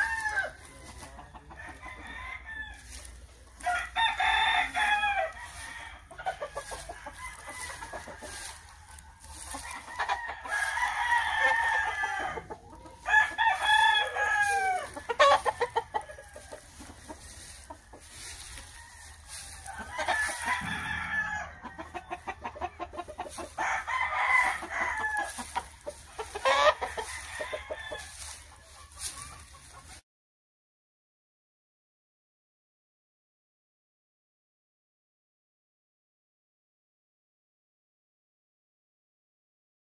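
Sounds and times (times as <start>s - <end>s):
roosters crowing: 0.0s - 29.7s.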